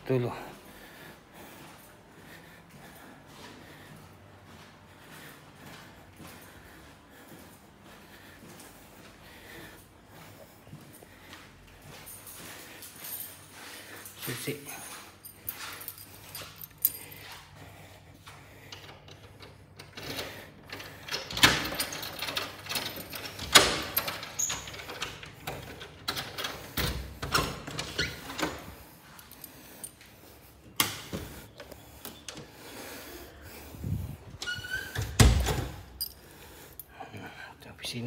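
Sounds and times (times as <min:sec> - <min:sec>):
keys jangling: 0:11.7 - 0:17.9, 0:18.5 - 0:37.2
door lock clicking and rattling: 0:18.7 - 0:28.8.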